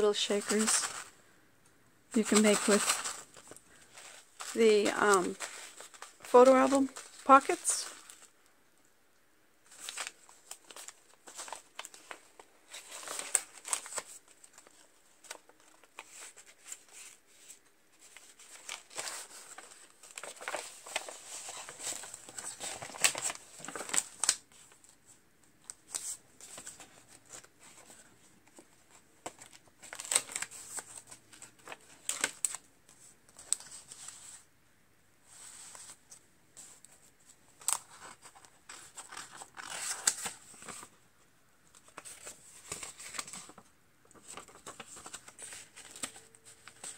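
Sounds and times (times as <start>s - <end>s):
paper pages turning: 0.0s - 1.2s, 2.2s - 8.3s, 9.7s - 34.5s, 35.3s - 41.0s, 41.7s - 46.9s
plastic sleeve crinkling: 0.0s - 1.2s, 2.2s - 8.4s, 9.7s - 24.8s.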